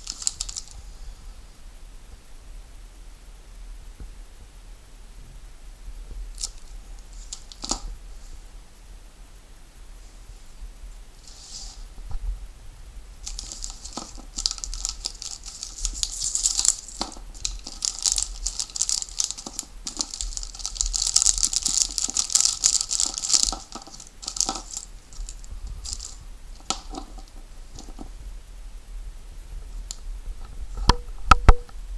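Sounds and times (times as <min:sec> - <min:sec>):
plastic bag crinkling: 0:00.0 - 0:00.8, 0:06.3 - 0:08.0, 0:13.2 - 0:28.2.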